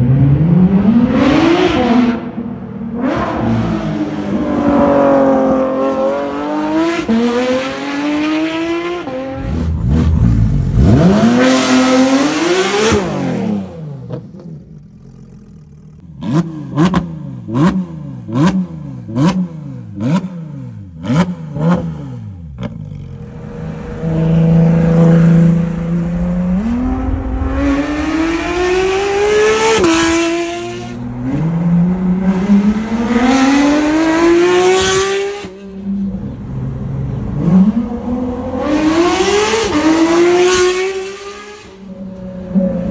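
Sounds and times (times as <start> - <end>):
sports car engine accelerating: 0.0 - 42.9
engine revving while stationary: 3.0 - 35.6
engine idling: 14.6 - 16.2.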